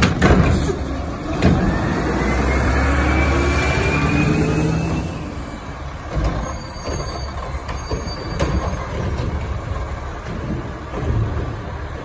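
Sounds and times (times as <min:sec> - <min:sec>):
garbage truck engine running: 0:00.0 - 0:12.0
faint high squeal: 0:01.8 - 0:05.5, 0:06.4 - 0:08.9.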